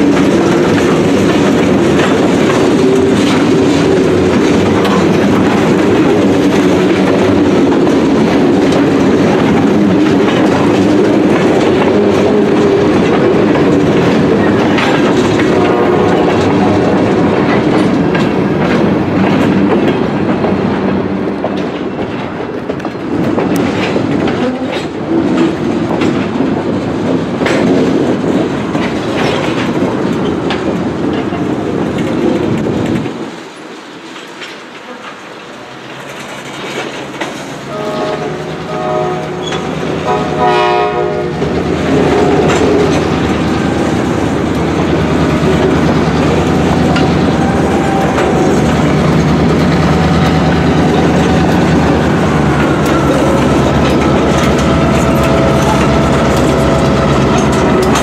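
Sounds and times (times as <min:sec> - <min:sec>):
train wheels clattering on rails: 0:00.0 - 0:58.0
locomotive horn blasts: 0:15.4 - 0:16.9, 0:37.7 - 0:43.1.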